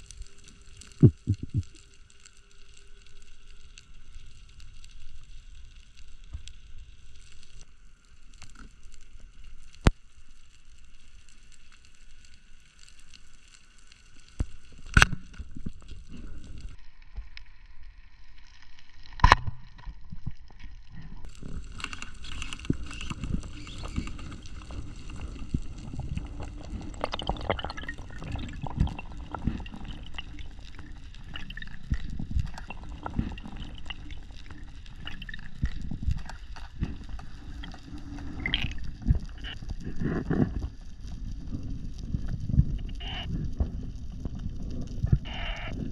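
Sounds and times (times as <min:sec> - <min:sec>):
water rushing and gurgling: 0:00.0 - 0:01.8, 0:21.2 - 0:41.6
faint underwater crackling: 0:00.0 - 0:45.9.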